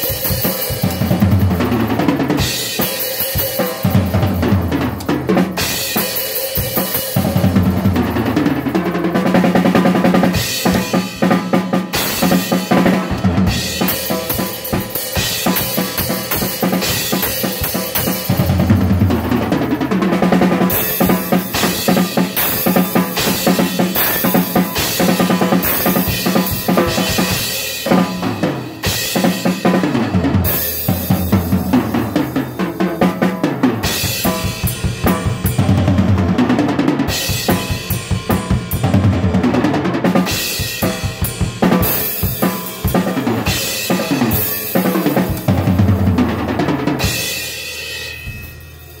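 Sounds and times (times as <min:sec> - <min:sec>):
bass drum and snare: 0:00.0 - 0:49.0
cymbal crashes: 0:47.0 - 0:49.0.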